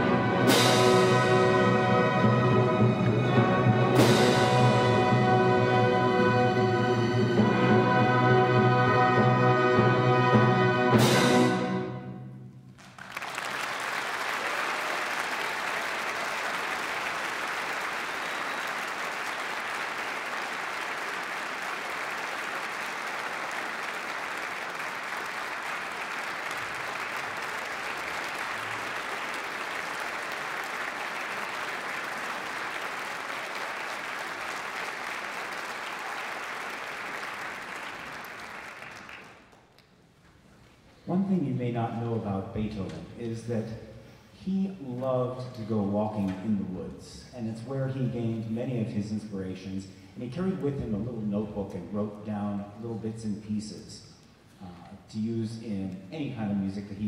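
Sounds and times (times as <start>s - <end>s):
orchestral chord: 0.0s - 12.6s
audience applauding: 12.8s - 40.0s.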